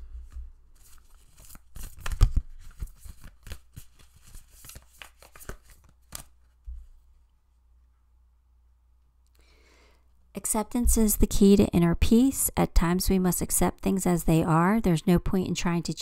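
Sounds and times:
cards being shuffled: 0.2s - 6.9s.

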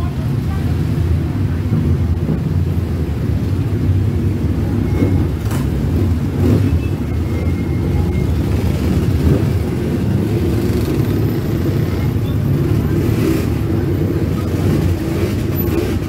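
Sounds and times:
motorcycles riding past: 5.0s - 16.0s.

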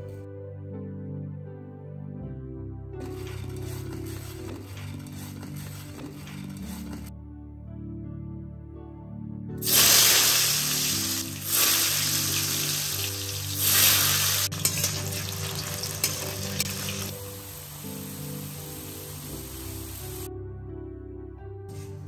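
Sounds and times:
potatoes sizzling in hot oil: 9.6s - 20.3s.

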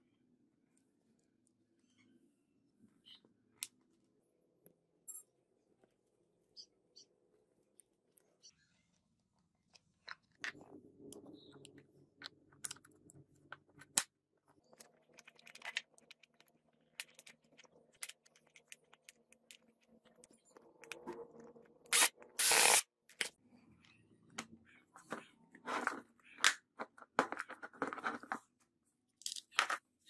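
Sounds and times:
plastic parts clicking and rattling: 9.7s - 22.2s
screwdriver scraping screw: 21.9s - 22.8s.

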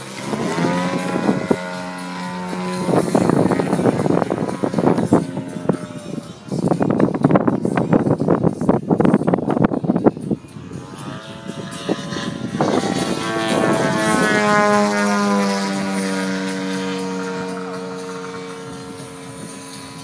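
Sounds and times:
model plane engine and propeller: 0.0s - 20.0s.

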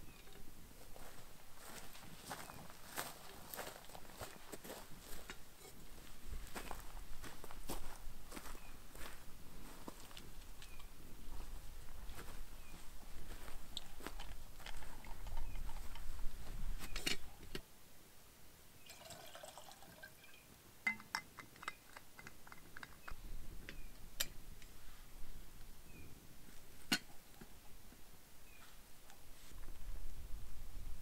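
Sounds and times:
camp gear clicks and clinks: 10.2s - 10.9s, 13.7s - 16.1s, 16.8s - 17.6s, 20.9s - 24.4s
wind on microphone: 14.5s - 17.5s, 29.6s - 31.0s
liquid trickling: 18.8s - 20.4s.

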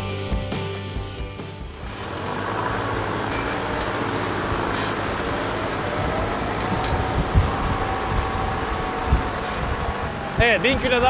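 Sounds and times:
tractor engine running: 0.3s - 11.0s
steady rush of noise: 1.8s - 11.0s.

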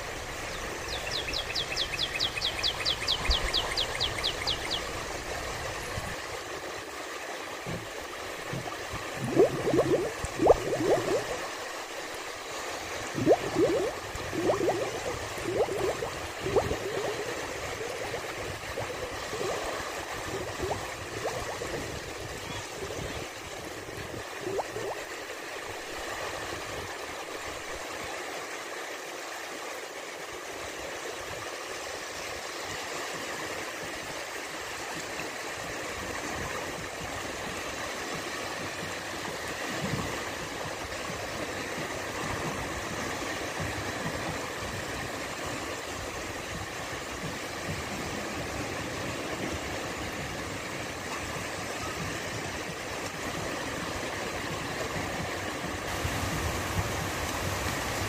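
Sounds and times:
small waves lapping: 0.0s - 28.4s.

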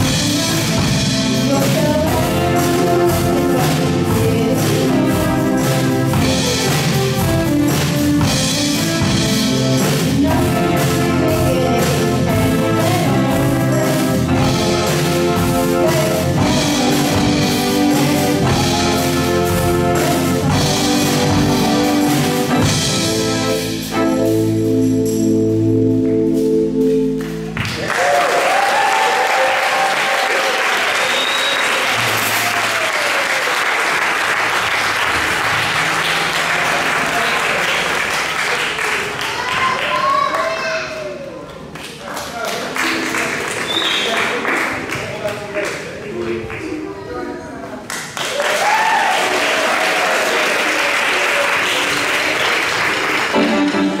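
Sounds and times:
audience applauding: 27.2s - 46.9s, 47.8s - 54.0s.

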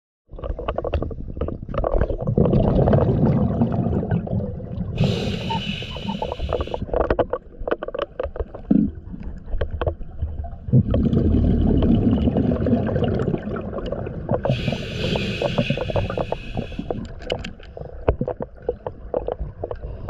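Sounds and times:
exhaust bubbles underwater: 2.2s - 6.8s, 10.4s - 17.0s
hissing regulator inhale: 5.0s - 6.8s, 14.4s - 17.0s.

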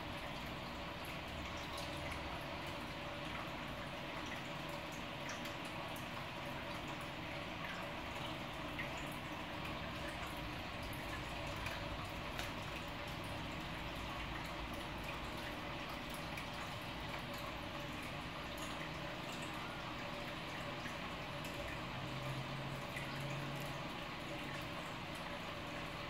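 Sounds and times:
aquarium water trickling: 0.0s - 26.0s
faint water drips: 0.0s - 26.0s.

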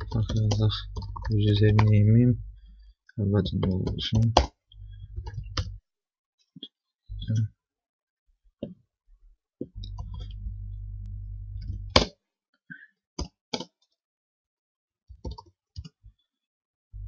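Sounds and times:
keystrokes on computer keyboard: 0.0s - 2.0s, 15.1s - 16.0s
low steady hum: 0.0s - 5.8s, 9.8s - 12.0s.

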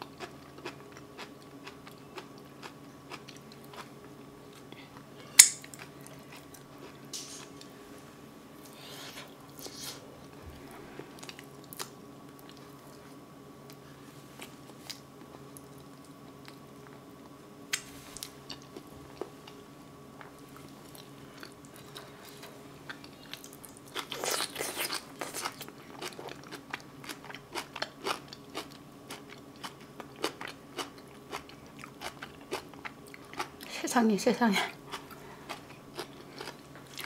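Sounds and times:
crunchy chewing: 0.0s - 7.7s, 14.4s - 19.6s, 20.2s - 33.7s, 34.8s - 37.0s
faint steady hum: 0.0s - 37.0s.

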